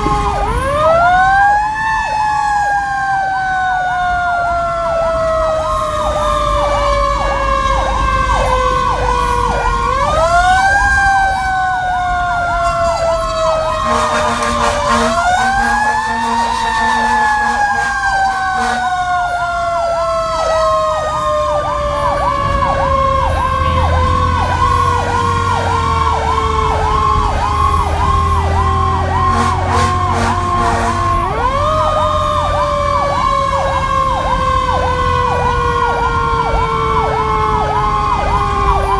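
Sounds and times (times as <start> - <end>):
truck engine rumbling: 0.0 - 38.9
wailing fire engine siren: 0.0 - 38.9
yelping siren: 0.0 - 38.9
short horn blasts: 12.8 - 18.9, 29.3 - 31.1.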